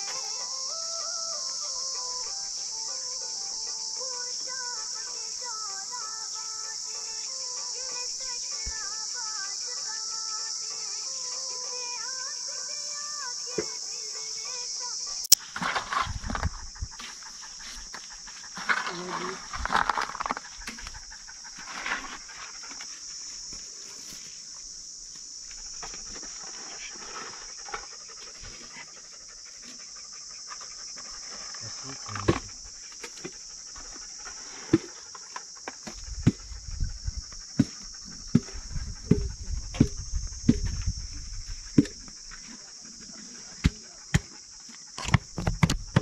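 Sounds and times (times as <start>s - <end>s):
high-pitched insect drone: 0.0s - 46.0s.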